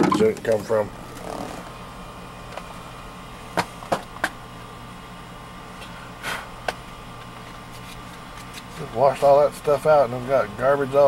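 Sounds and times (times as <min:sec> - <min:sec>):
steady cabin hum: 0:00.0 - 0:11.0.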